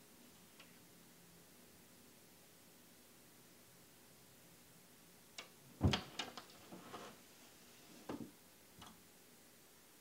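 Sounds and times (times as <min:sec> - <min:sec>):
thump on window glass: 0:05.8 - 0:06.2
rubbing on glass pane: 0:06.5 - 0:07.2.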